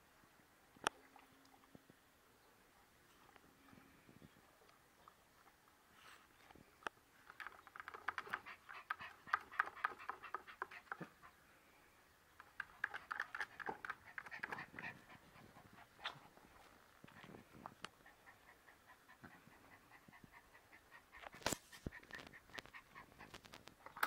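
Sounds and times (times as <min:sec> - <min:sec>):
small dog panting rapidly: 0:07.4 - 0:11.4, 0:12.6 - 0:23.6.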